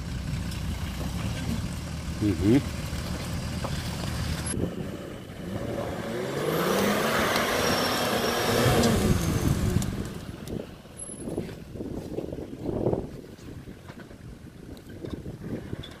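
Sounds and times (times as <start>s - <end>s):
car engine revving: 0.0s - 10.5s.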